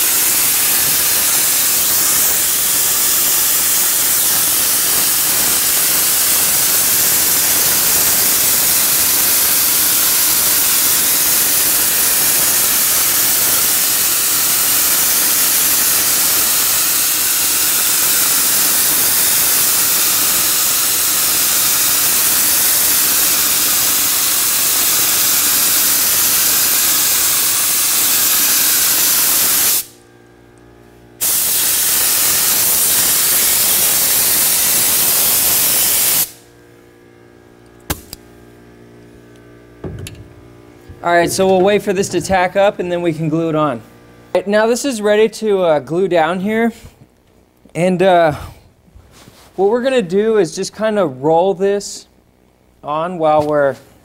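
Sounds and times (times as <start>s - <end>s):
spray gun hissing: 0.0s - 29.9s, 31.2s - 36.4s.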